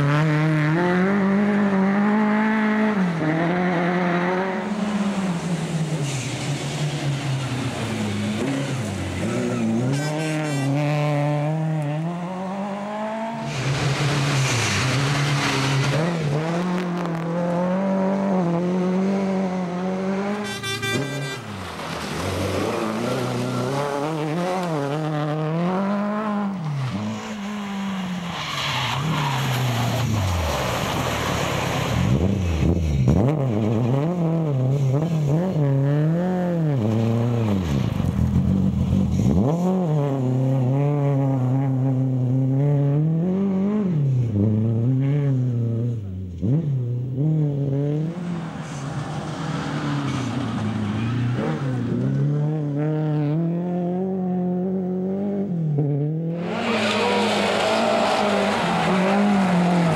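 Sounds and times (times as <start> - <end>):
rally car engine revving: 0.0 - 59.9
tyres skidding on gravel: 21.4 - 24.8, 26.6 - 32.5, 56.4 - 59.9.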